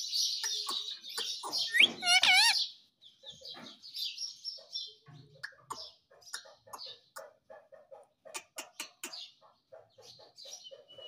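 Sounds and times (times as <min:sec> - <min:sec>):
parrot calling and chattering: 0:00.4 - 0:02.8.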